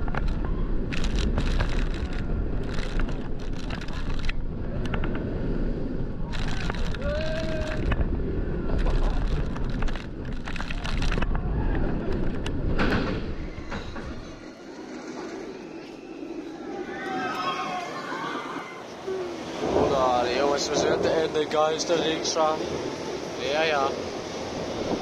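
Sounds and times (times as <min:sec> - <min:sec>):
roller coaster train rumble and clatter: 0:00.0 - 0:25.0
wind buffeting microphone: 0:00.0 - 0:25.0
rider crying out: 0:16.8 - 0:19.4.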